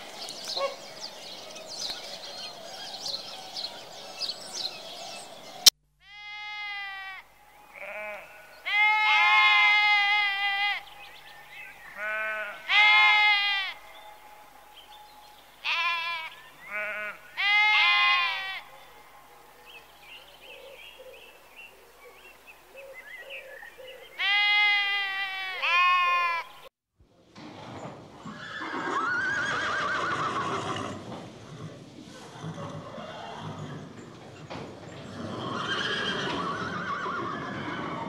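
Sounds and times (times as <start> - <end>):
herd of horses: 0.0 - 5.8, 27.2 - 38.0
sheep bleating: 6.0 - 10.9, 11.9 - 13.9, 15.6 - 18.7, 24.2 - 26.5
horse whinnying: 28.3 - 34.0, 35.0 - 38.0.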